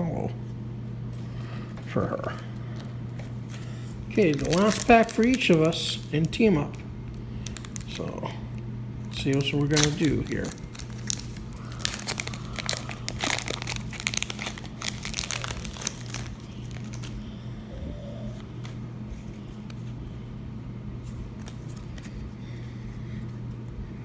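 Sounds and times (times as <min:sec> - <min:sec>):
steady low hum: 0:00.0 - 0:24.0
foil wrapper crinkling and tearing: 0:04.1 - 0:08.2, 0:09.1 - 0:17.2.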